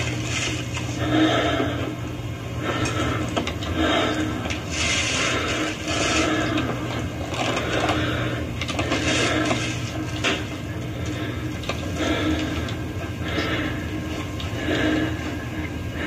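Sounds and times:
rustling and scraping: 0.0s - 1.0s, 4.5s - 10.6s
steady low hum: 0.0s - 16.0s.

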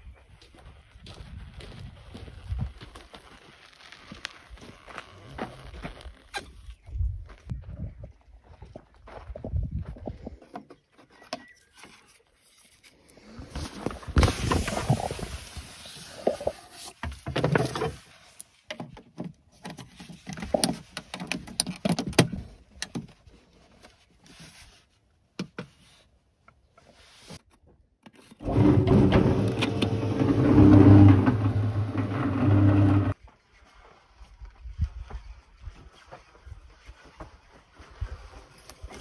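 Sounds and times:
cement mixer motor hum: 28.4s - 33.2s.

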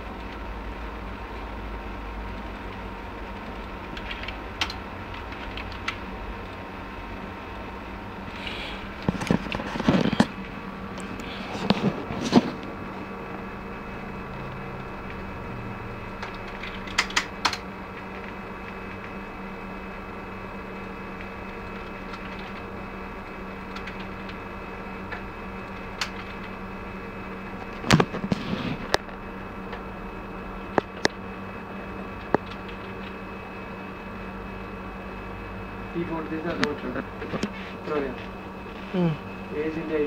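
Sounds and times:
steady hum: 0.0s - 40.0s
keyboard and mouse clicks: 3.9s - 6.0s, 16.2s - 17.6s.

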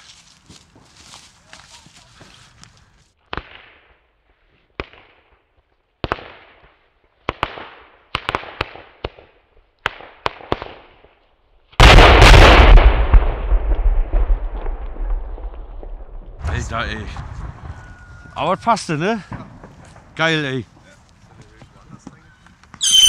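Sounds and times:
loud blast with rumble: 11.8s - 17.8s
firecrackers exploding: 11.8s - 17.9s, 22.8s - 23.0s.

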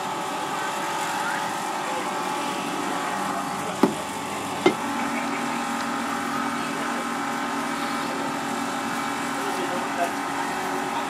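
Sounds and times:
steady mechanical hum: 0.0s - 11.0s
cleaver chopping onto wooden board: 3.8s - 4.0s.

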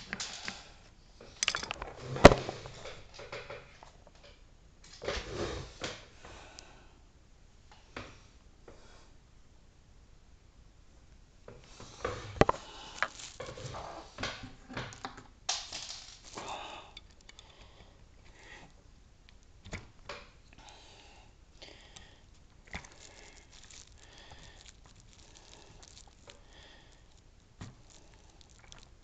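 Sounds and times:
plastic strip crinkling: 12.4s - 17.5s, 21.6s - 29.0s.

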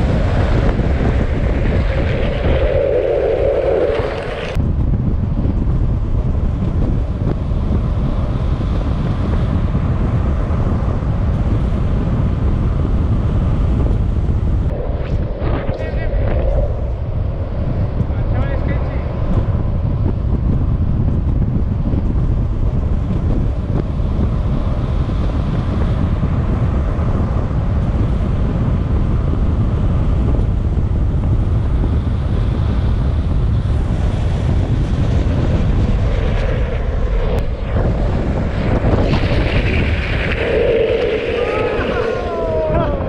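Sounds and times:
wheels rolling on asphalt: 0.0s - 4.6s, 32.0s - 43.0s
wind rushing over microphone: 0.0s - 43.0s.

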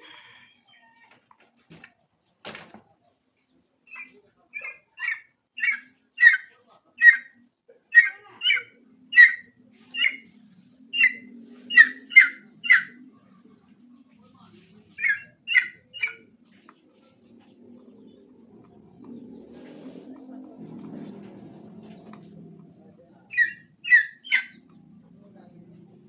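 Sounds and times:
junglefowl calling: 3.9s - 13.2s, 15.0s - 16.3s, 23.3s - 24.7s.

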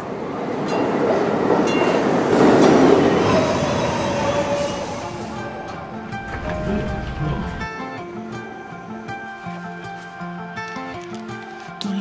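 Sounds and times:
metro train rumble: 0.0s - 9.0s.

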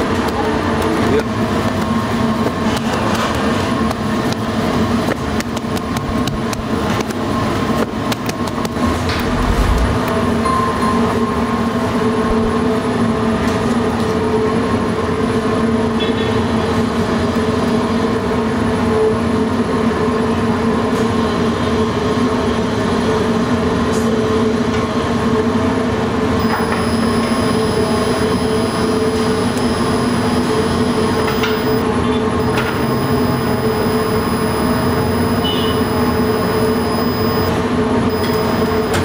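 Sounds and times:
machinery droning: 8.7s - 12.6s, 26.4s - 39.0s.

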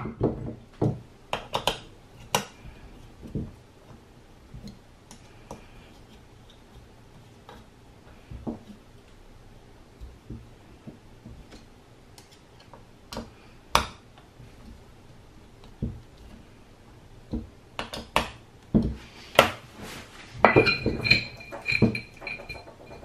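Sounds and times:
sharp metal clicks and clinks: 20.6s - 23.0s.

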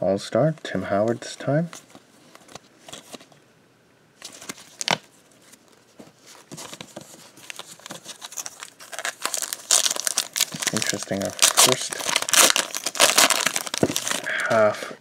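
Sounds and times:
foil wrapper crinkling: 7.4s - 14.6s.

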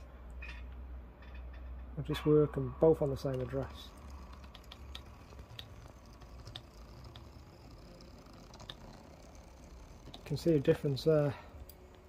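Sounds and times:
light irregular clicks: 3.2s - 7.4s
faint motor running hum: 3.2s - 12.0s.

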